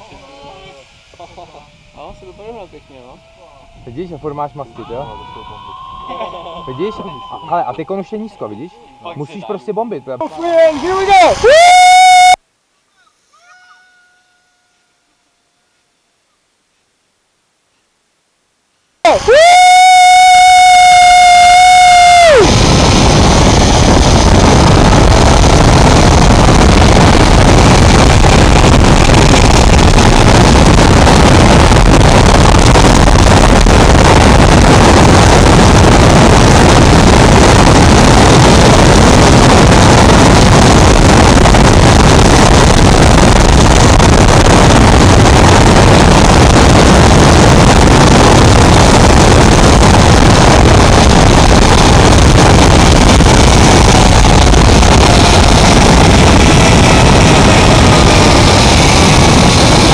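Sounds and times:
wind buffeting microphone: 21.6s - 59.9s.

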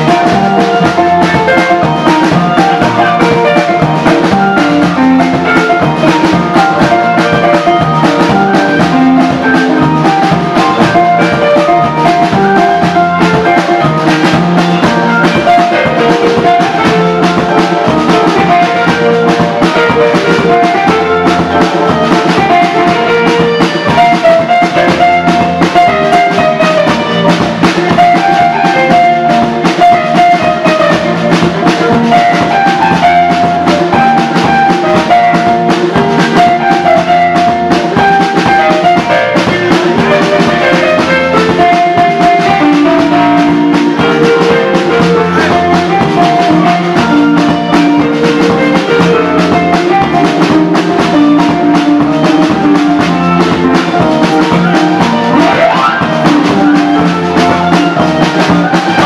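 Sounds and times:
drum kit beat: 0.0s - 59.0s
quick melodic lines: 0.0s - 59.0s.

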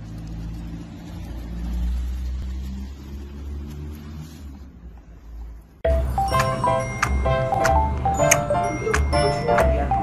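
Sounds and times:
vehicle engine running: 0.0s - 10.0s.

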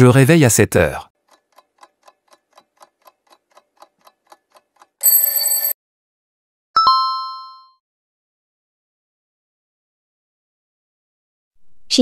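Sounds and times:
clock ticking: 1.1s - 5.6s
alarm clock ring: 5.0s - 5.8s.

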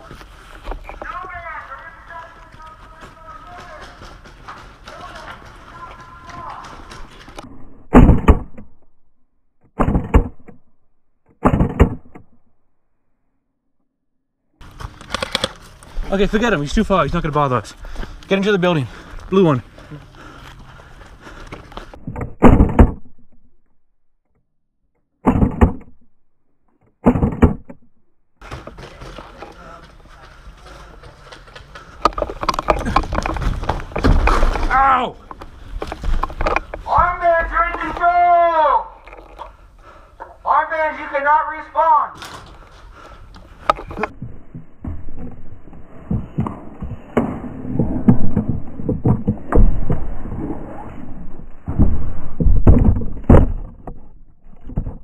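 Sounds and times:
footsteps thumping: 0.0s - 7.4s.

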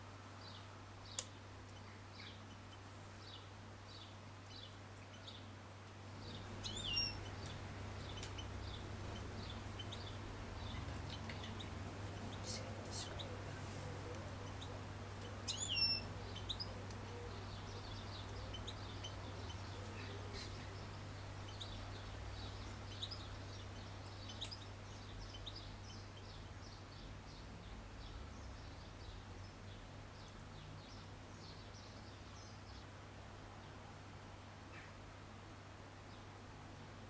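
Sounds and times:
goldfinches twittering: 6.2s - 13.5s, 14.3s - 26.4s.

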